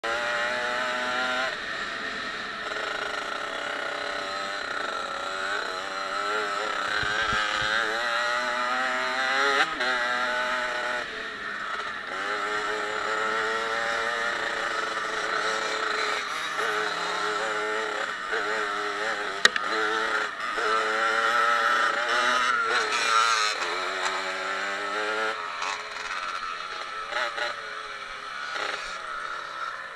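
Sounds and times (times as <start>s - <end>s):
dirt bike engine revving: 0.0s - 29.9s
sharp click: 19.4s - 19.7s.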